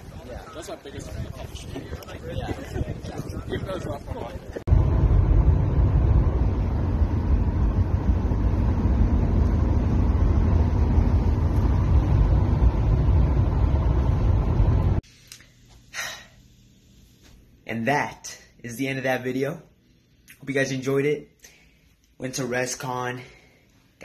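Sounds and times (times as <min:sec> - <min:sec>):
car road and engine rumble: 0:04.6 - 0:15.0.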